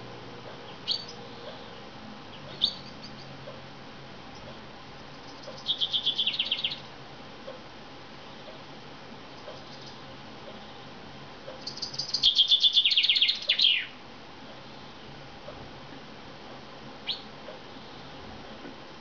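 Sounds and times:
chaffinch calling: 0.6s - 3.6s, 4.4s - 6.9s, 9.4s - 10.0s, 11.5s - 14.0s, 17.0s - 17.3s.

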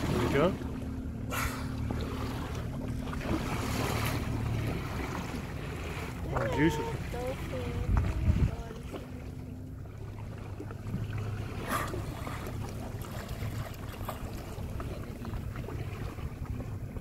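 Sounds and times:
short splash: 0.0s - 16.8s
boat engine idling: 0.0s - 17.0s
water sloshing around hull: 0.0s - 17.0s.

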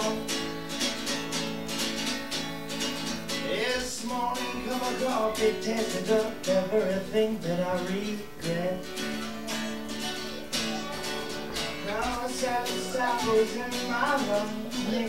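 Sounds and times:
man singing: 0.0s - 0.6s, 3.3s - 9.8s, 11.7s - 15.0s
acoustic guitar strumming: 0.0s - 15.0s.

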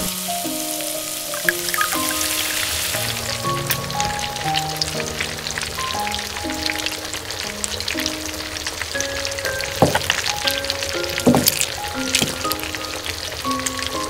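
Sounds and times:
background music melody: 0.0s - 14.0s
gravy bubbling and crackling: 3.0s - 14.0s.

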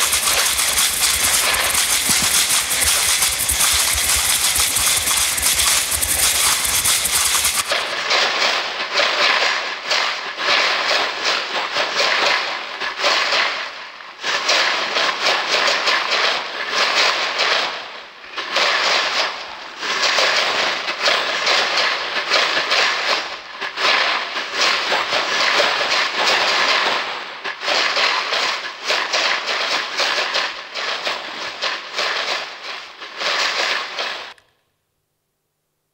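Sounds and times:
dense crackling and clattering: 0.0s - 8.7s.

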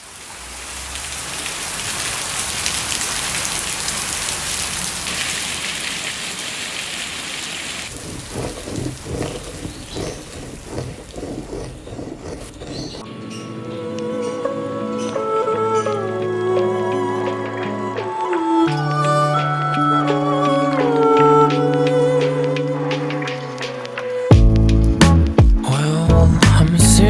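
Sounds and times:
heavy rain on pavement: 0.0s - 10.0s
music: 13.0s - 27.0s.

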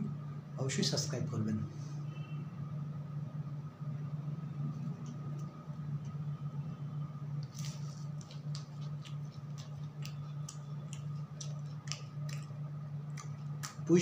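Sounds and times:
steady low hum: 0.0s - 14.0s
man chewing with mouth sounds: 7.5s - 13.9s.

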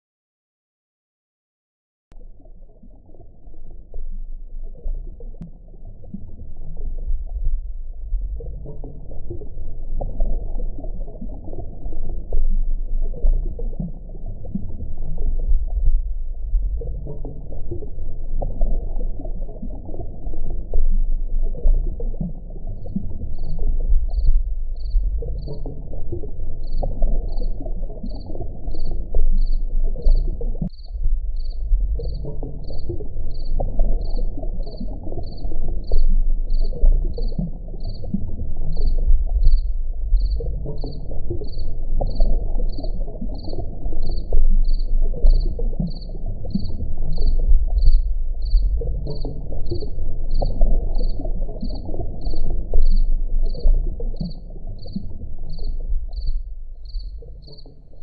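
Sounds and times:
frogs croaking: 22.8s - 25.9s, 26.6s - 58.0s
high insect chirping: 23.4s - 25.6s, 26.6s - 38.0s, 38.7s - 49.3s, 50.3s - 53.6s, 54.2s - 57.9s.

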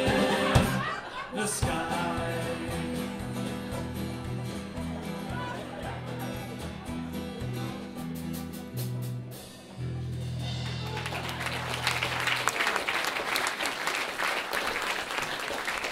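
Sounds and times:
live band playing: 0.0s - 13.2s
audience applause: 10.6s - 15.9s.

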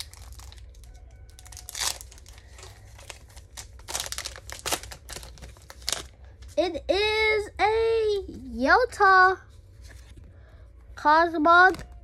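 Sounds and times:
foil wrapper crinkling and tearing: 0.0s - 6.6s.

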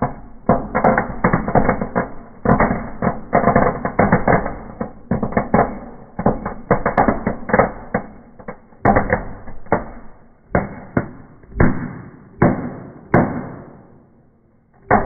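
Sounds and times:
fireworks cracking and banging: 0.0s - 15.0s.

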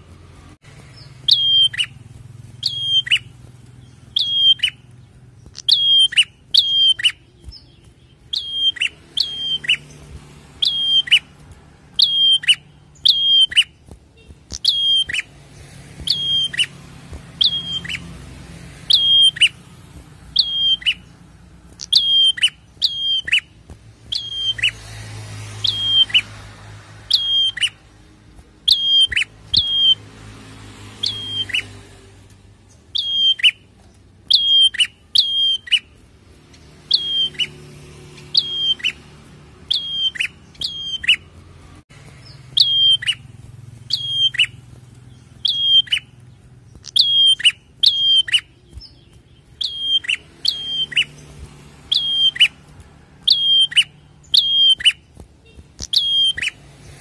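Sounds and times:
bird chirping: 0.0s - 57.0s.

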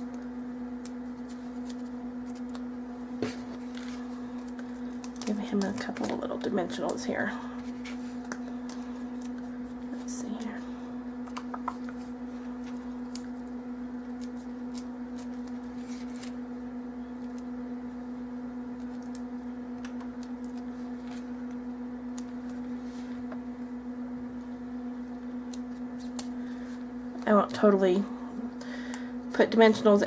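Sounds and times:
steady low hum: 0.0s - 30.0s
ticks and crinkles of paper handling: 3.2s - 10.5s, 11.3s - 16.4s.

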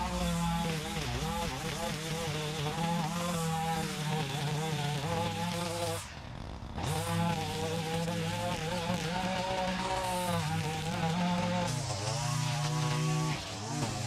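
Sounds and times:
string trimmer cutting weeds: 0.0s - 6.2s, 6.8s - 14.0s.

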